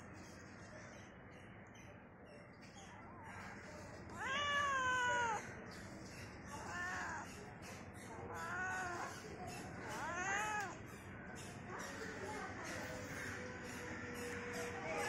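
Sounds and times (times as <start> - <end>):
cat meowing: 4.1 - 5.4, 6.5 - 7.3, 8.3 - 9.1, 9.9 - 10.8.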